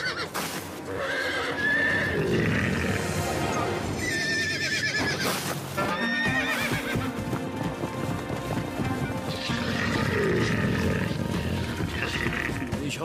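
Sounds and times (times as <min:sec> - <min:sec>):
cartoon horse whinnying: 0:00.0 - 0:03.0, 0:04.0 - 0:06.9, 0:09.3 - 0:12.7
background music: 0:00.0 - 0:13.0.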